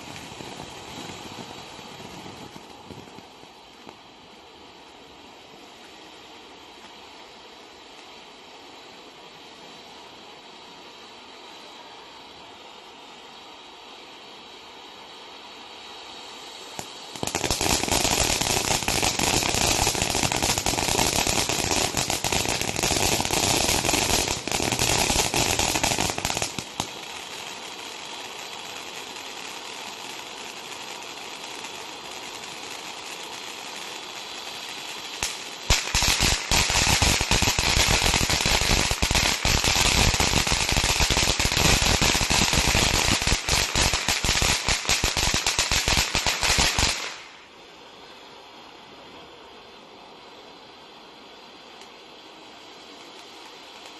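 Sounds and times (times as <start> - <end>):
firework fountain crackling: 0.0 - 53.9
firework fountain hissing: 0.0 - 53.9.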